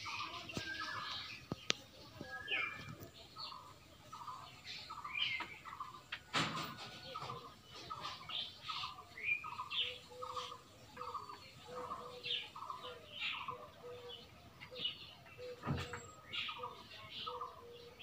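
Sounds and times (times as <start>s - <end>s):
steady repeated animal call: 3.6s - 14.8s.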